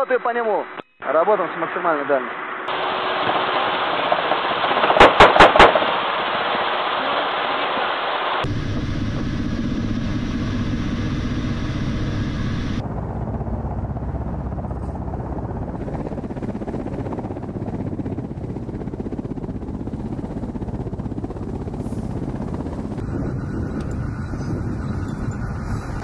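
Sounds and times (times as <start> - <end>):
cockpit engine and rotor drone: 0.0 - 5.6, 8.3 - 26.0
helicopter rotor beat: 8.4 - 26.0.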